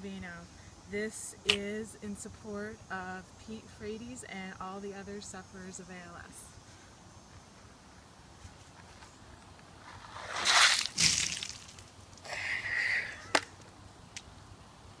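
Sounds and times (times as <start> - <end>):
water pouring and splashing: 10.3 - 11.9.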